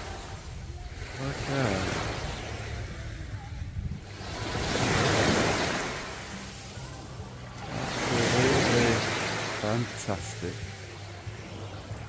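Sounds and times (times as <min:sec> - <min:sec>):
surf washing onto beach: 0:00.0 - 0:12.0.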